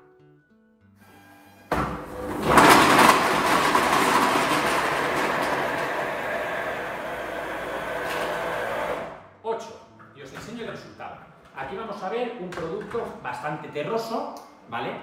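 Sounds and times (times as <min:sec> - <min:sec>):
blender blade clattering whirr: 0:01.8 - 0:09.1.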